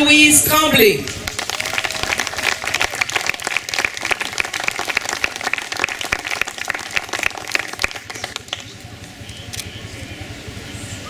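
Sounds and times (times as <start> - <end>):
crowd clapping: 1.0 - 9.6.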